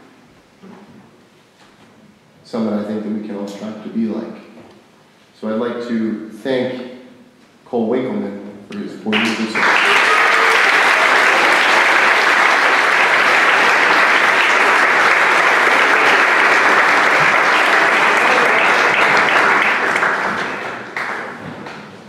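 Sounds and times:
audience applauding: 9.1s - 22.0s.

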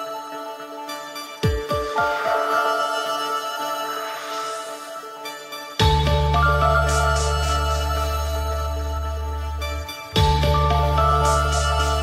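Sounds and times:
synth notes over bass: 5.8s - 12.0s.

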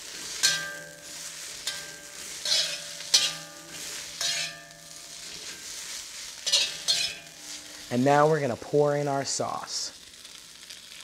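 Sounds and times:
noodles sizzling in a wok: 0.0s - 11.0s
metal spoon clanking on wok: 0.3s - 5.0s, 6.4s - 7.4s.

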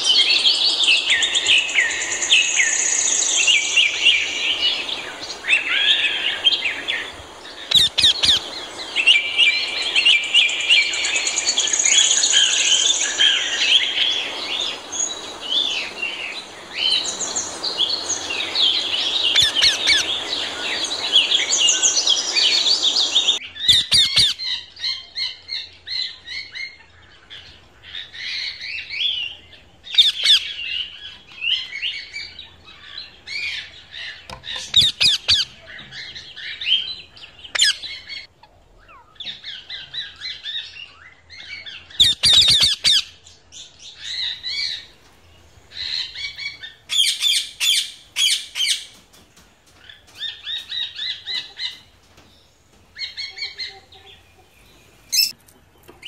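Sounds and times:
steady high hiss: 0.0s - 23.4s
parrots squawking and chirping: 5.4s - 11.3s, 16.8s - 24.7s, 29.9s - 31.1s, 32.6s - 40.8s, 41.6s - 43.2s, 53.0s - 55.4s.

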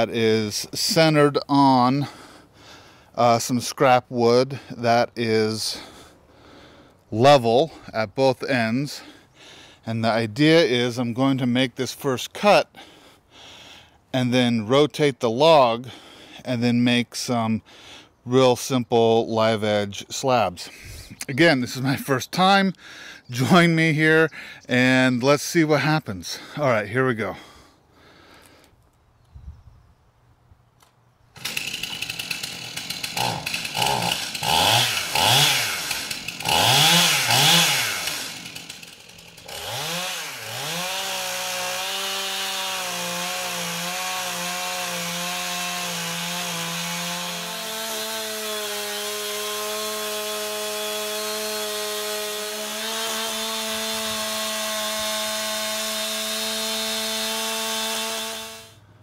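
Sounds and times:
chainsaw revving and cutting log: 0.0s - 7.9s, 8.5s - 14.5s, 15.4s - 16.6s, 21.6s - 22.6s, 26.3s - 28.5s, 31.4s - 58.8s.

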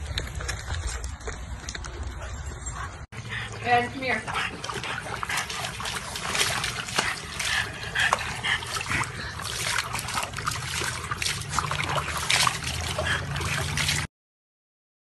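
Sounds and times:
water splashing in plastic tub: 3.7s - 14.1s
water slopping onto concrete: 3.9s - 14.1s.

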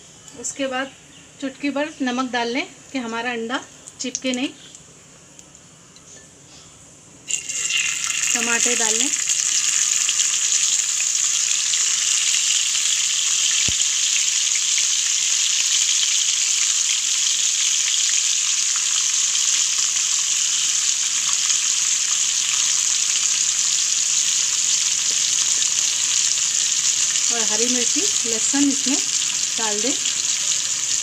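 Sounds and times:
tomato slices sizzling in oil: 7.2s - 31.0s.

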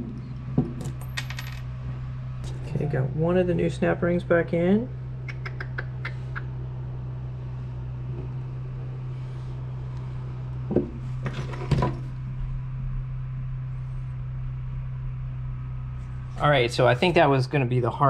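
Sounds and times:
steady low hum: 0.0s - 18.0s.

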